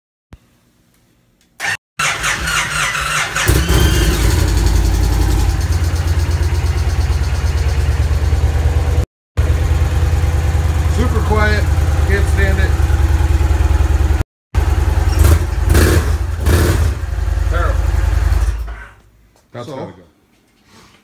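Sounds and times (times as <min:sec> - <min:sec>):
electric starter cranking: 0:01.6 - 0:04.9
motorcycle engine idling: 0:03.4 - 0:16.4, 0:17.0 - 0:18.4.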